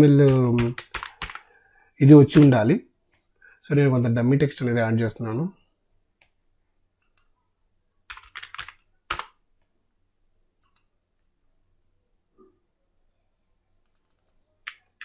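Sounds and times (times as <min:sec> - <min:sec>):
typing on a computer keyboard: 0:00.0 - 0:01.5, 0:08.1 - 0:09.4, 0:13.8 - 0:15.0.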